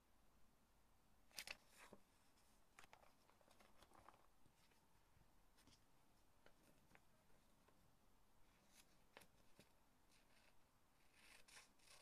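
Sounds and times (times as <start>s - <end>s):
paper rustling: 1.3s - 4.9s, 8.6s - 12.0s.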